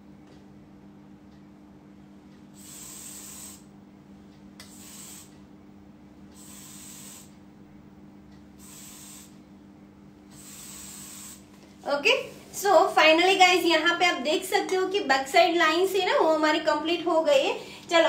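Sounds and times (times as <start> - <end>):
aerosol spray hissing: 2.6 - 3.7, 4.7 - 5.3, 6.4 - 7.3, 8.6 - 9.4, 10.3 - 11.5.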